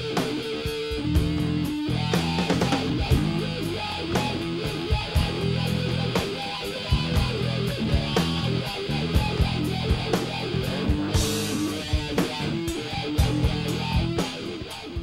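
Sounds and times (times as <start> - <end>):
drums: 0.0 - 15.0
wah guitar: 0.0 - 15.0
low bass line: 1.0 - 6.2, 6.9 - 14.2.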